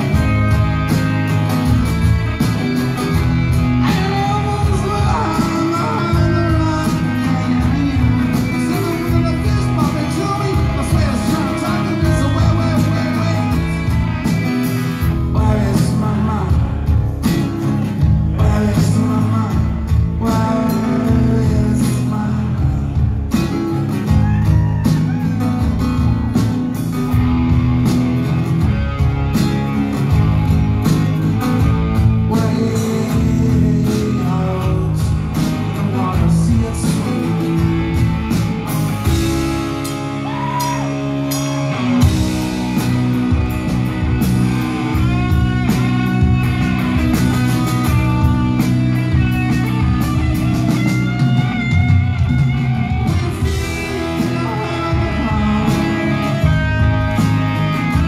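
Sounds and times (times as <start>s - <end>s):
bass and drums: 0.0s - 58.0s
guitars: 0.0s - 58.0s
man singing: 3.7s - 14.0s, 15.0s - 23.5s, 32.0s - 38.0s, 53.4s - 58.0s.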